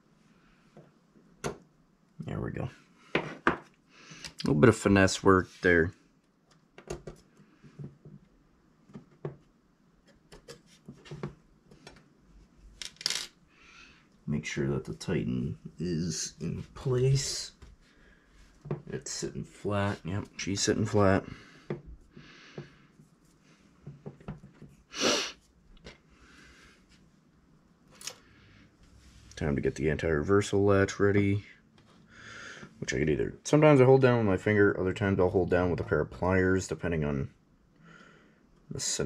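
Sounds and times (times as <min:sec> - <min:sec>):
small parts and tools clicking: 0:12.8 - 0:13.4
sharp puff of breath: 0:24.9 - 0:25.4.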